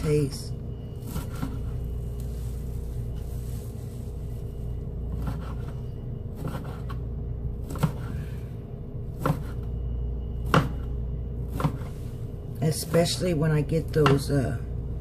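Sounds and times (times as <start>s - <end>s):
steady low hum: 0.0s - 15.0s
knife chopping on cutting board: 5.1s - 5.7s, 6.4s - 7.0s, 7.6s - 8.2s, 9.2s - 9.6s, 10.4s - 10.9s, 11.5s - 12.0s, 13.9s - 14.4s.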